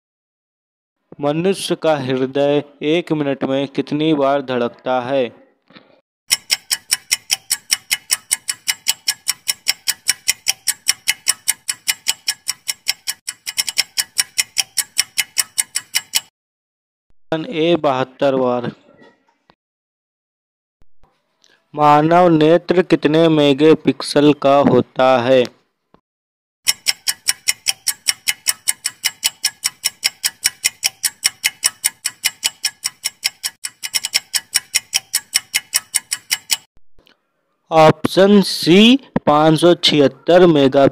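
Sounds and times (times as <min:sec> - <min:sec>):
clock ticking fast: 0:06.3 - 0:16.3, 0:26.6 - 0:36.7.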